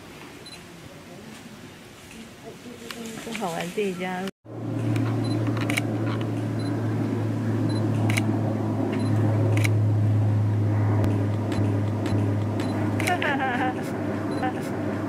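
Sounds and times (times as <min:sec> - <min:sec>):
steady low hum: 0:04.5 - 0:15.0
camera shutter clicks: 0:05.6 - 0:05.8.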